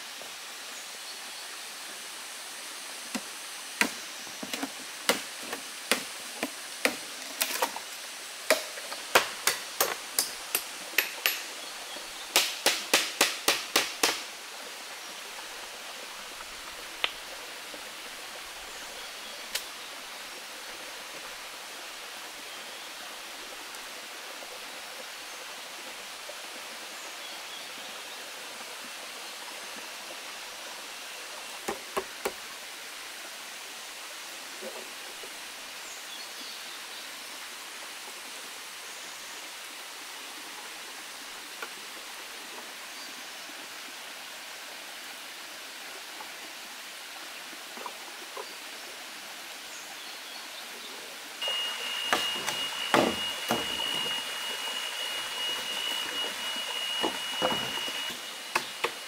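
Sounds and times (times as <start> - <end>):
sharp knocks on bamboo: 3.1 - 7.7, 8.5 - 11.4, 12.3 - 14.3, 52.1 - 54.0
waterfall rushing: 50.9 - 59.0.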